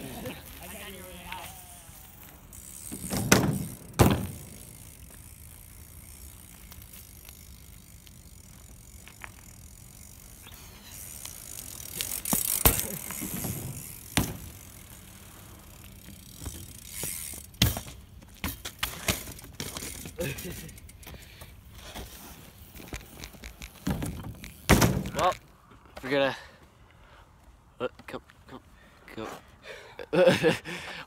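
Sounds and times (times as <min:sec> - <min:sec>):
bike rattling: 0:00.0 - 0:26.2
bike landing impact: 0:02.5 - 0:05.4, 0:11.6 - 0:20.6, 0:23.4 - 0:25.4
bike knocking: 0:02.7 - 0:05.3, 0:12.0 - 0:15.0, 0:22.8 - 0:25.4.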